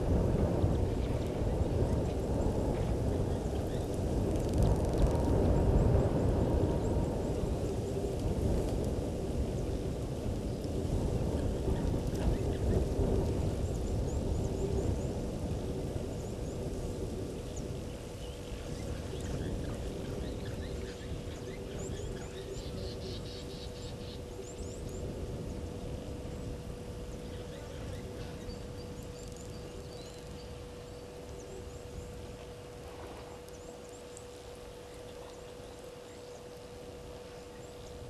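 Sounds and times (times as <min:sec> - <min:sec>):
faint hum: 0:00.0 - 0:38.0
steady low noise: 0:00.0 - 0:38.0.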